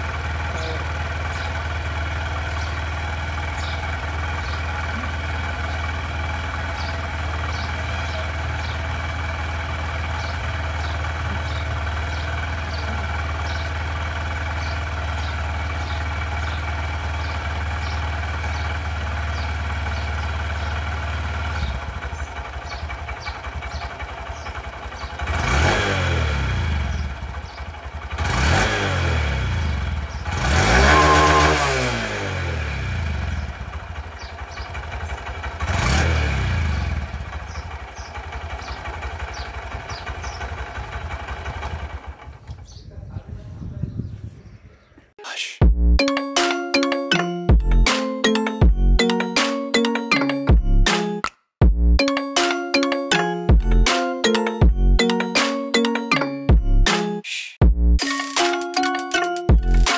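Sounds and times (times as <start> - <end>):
motorcycle engine revving: 0.0 - 42.8
motorcycle engine idling: 0.0 - 43.6.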